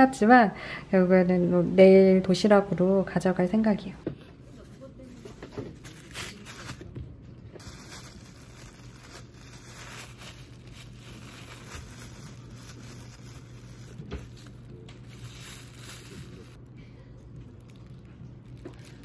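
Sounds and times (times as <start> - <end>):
rustling and handling noises: 4.3 - 16.6, 17.3 - 19.0.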